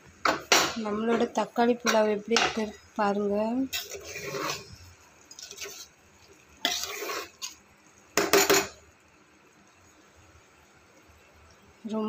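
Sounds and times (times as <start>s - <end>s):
metal spoon scraping cooker: 3.7s - 4.7s, 6.6s - 7.6s.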